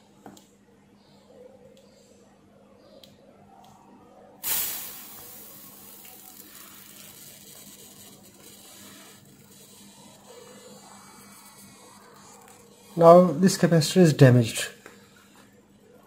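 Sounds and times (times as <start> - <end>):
capacitor venting gas hiss: 4.4 - 15.8.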